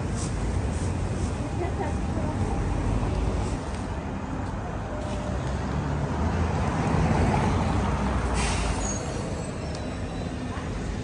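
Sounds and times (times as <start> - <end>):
low rumble of street traffic: 0.0 - 11.0
short hiss: 8.4 - 9.2.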